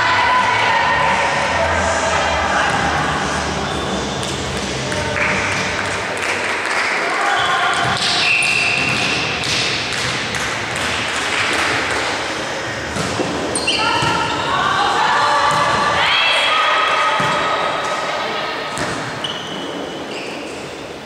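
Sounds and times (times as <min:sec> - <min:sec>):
volleyball thumps: 0:12.9 - 0:14.3.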